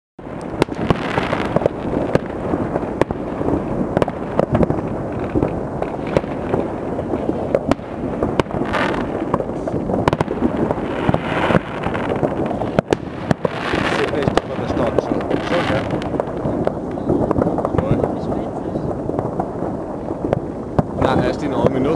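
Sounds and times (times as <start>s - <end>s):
distant firecrackers crackling: 0.2s - 21.9s
sharp fireworks bangs: 0.2s - 21.9s.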